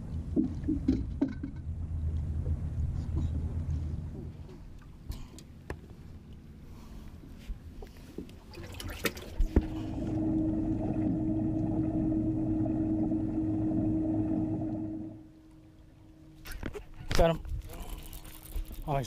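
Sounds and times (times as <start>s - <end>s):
water pump running: 8.5s - 15.3s.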